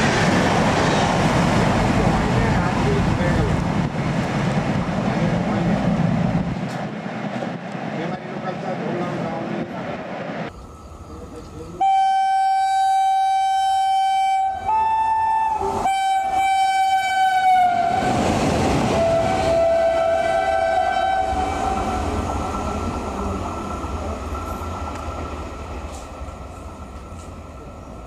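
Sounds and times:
passing locomotive wheel clatter: 0.0 - 11.8, 15.6 - 28.0
locomotive air horn blast: 11.8 - 18.2, 18.9 - 21.9.

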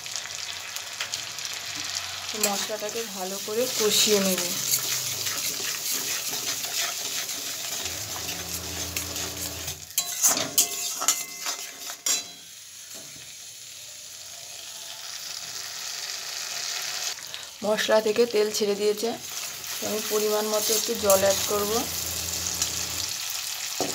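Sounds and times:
spice paste sizzling in oil: 0.0 - 23.9
spatula scraping metal pan: 2.4 - 12.4, 19.4 - 23.1.

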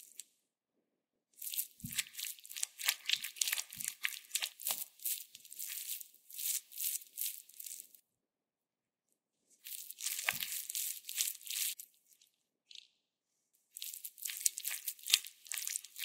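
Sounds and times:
spatula stirring dough in bowl: 1.4 - 8.0, 9.6 - 12.2, 13.8 - 16.0.

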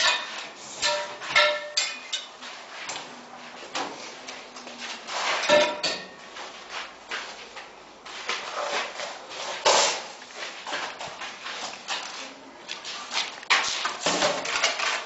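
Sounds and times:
metallic knocks and scraping: 5.4 - 6.2.

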